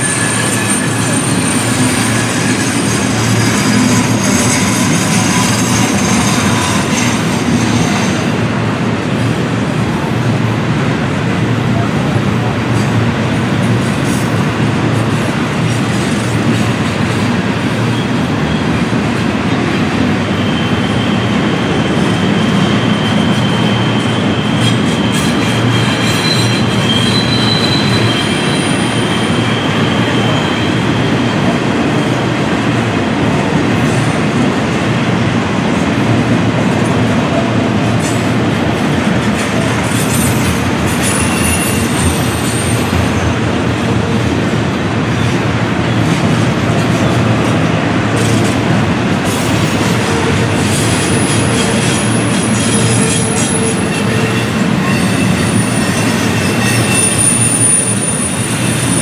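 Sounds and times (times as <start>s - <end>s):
high-pitched wheel squeals: 0.0s - 8.2s, 20.3s - 31.5s, 39.9s - 42.9s, 50.1s - 59.0s
freight train rumbling by: 0.0s - 59.0s.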